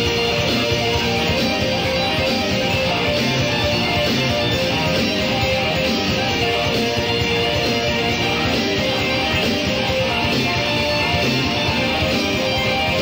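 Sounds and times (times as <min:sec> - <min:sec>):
live rock band with guitars: 0:00.0 - 0:13.0.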